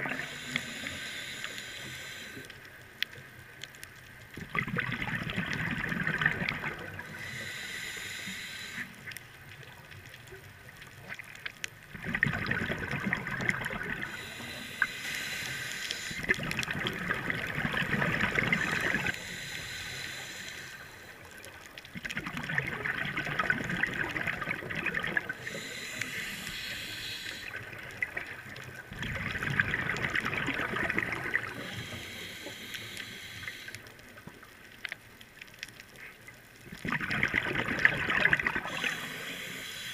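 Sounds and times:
inhaled air hissing through regulator: 0.1 - 2.5, 7.0 - 9.1, 14.0 - 16.4, 18.4 - 21.2, 25.3 - 27.7, 31.3 - 33.9, 38.6 - 39.9
bubbling rush of exhaled air: 4.4 - 7.6, 11.9 - 19.2, 22.0 - 33.7, 36.8 - 39.9.

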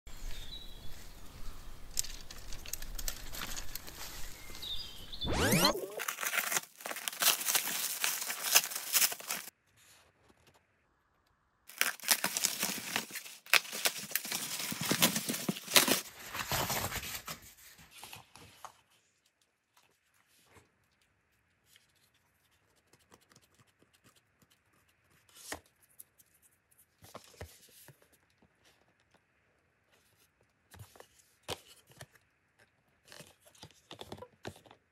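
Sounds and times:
plastic wrapping tearing: 5.6 - 9.5, 11.7 - 17.0
handling on cardboard: 6.2 - 9.9, 11.8 - 18.9.

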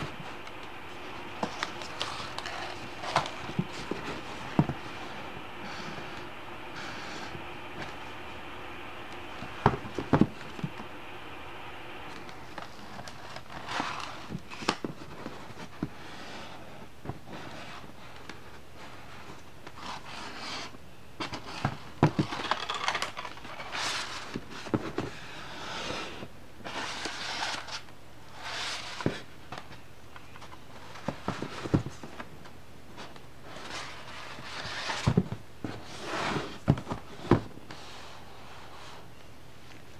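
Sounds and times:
pages turning: 0.0 - 8.1, 12.0 - 15.8
paper rustling and scraping: 0.0 - 8.1, 12.0 - 32.3, 32.9 - 39.1
book knocking: 1.4 - 4.8.

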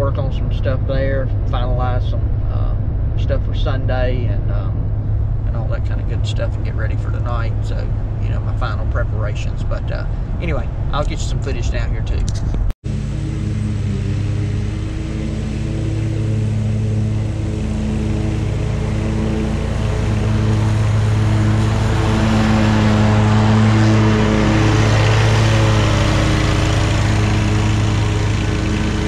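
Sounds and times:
lawn mower running: 12.8 - 29.0.

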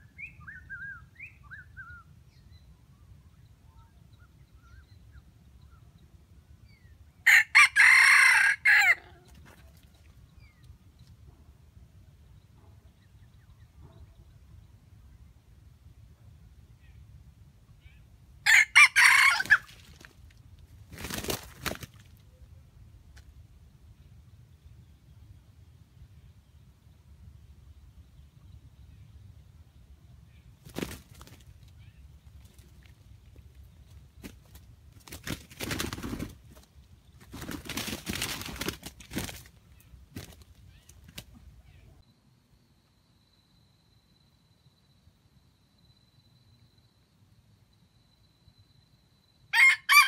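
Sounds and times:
rooster crowing: 7.3 - 9.2, 18.5 - 19.7, 49.5 - 50.0
wingbeats flurry: 19.1 - 22.2, 30.6 - 31.8, 32.4 - 41.4.

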